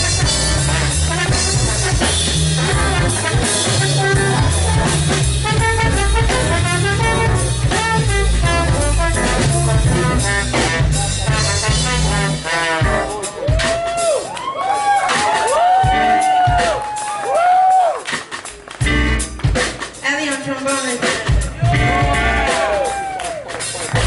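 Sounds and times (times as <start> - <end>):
trombone playing lead line: 0.0 - 13.7
keyboard: 0.0 - 13.8
bass line: 0.0 - 14.3, 18.8 - 20.1, 21.0 - 24.0
drum kit: 0.0 - 24.0.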